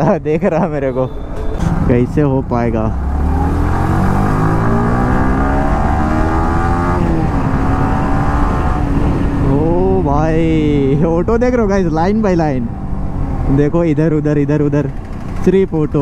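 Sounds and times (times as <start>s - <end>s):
man talking: 0.0s - 3.0s, 9.5s - 12.8s, 13.5s - 16.0s
low wind rumble: 0.0s - 16.0s
motorcycle engine accelerating: 1.5s - 11.0s, 12.4s - 16.0s.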